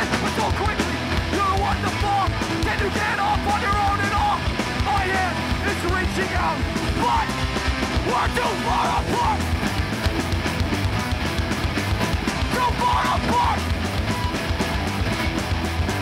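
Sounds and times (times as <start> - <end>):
hardcore band playing: 0.0 - 16.0
vocalist yelling: 0.2 - 7.4, 8.0 - 9.5, 12.4 - 13.7.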